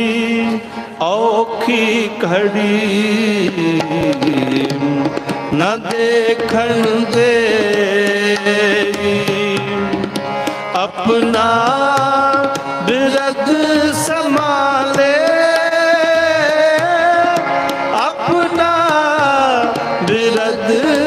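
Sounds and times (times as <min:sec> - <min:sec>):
harmoniums playing: 0:00.0 - 0:21.0
tabla rhythm: 0:00.0 - 0:21.0
person singing: 0:10.6 - 0:21.0.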